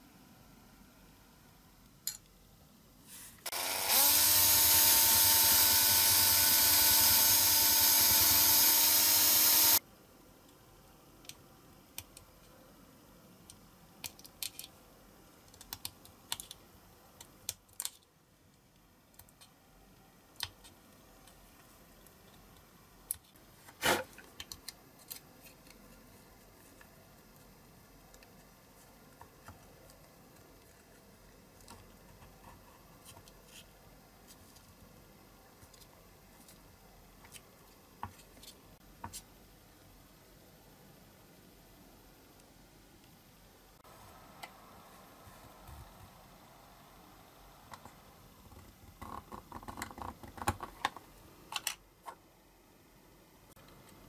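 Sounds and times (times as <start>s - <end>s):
small electric power tool running: 3.4s - 9.8s.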